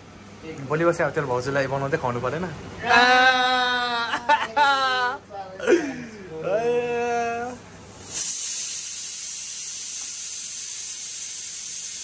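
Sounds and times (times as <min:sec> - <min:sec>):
steady steam-like hiss: 0:07.2 - 0:12.0.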